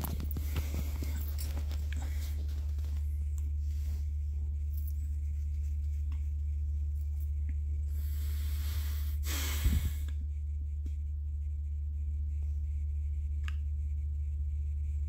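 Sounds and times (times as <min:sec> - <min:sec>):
steady low hum: 0:00.0 - 0:15.0
breath blown into microphone: 0:07.9 - 0:10.2.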